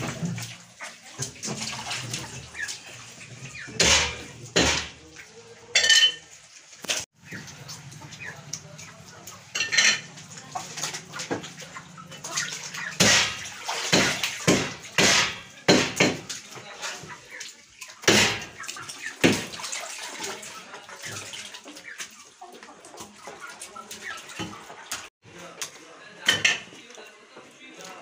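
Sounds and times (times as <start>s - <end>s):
wet squelches: 0.0s - 5.5s, 6.4s - 25.8s
water sloshing: 0.0s - 25.1s
loud splashes: 10.8s - 16.6s, 17.3s - 21.6s.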